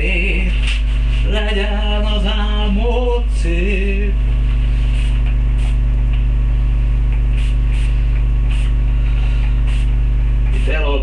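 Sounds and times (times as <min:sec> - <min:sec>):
electrical mains hum: 0:00.0 - 0:11.0
spray bottle spritzing: 0:04.9 - 0:05.8, 0:07.3 - 0:08.8, 0:09.6 - 0:10.7.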